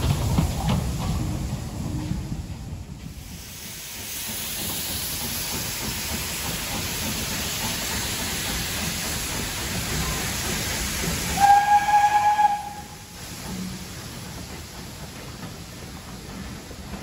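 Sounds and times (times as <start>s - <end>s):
steam locomotives hissing: 0.0s - 17.0s
steam whistle blast: 11.4s - 13.0s.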